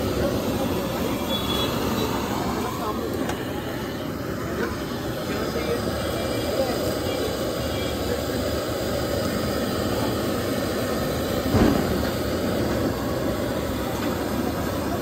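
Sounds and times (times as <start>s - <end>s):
gas burner roaring: 0.0s - 15.0s.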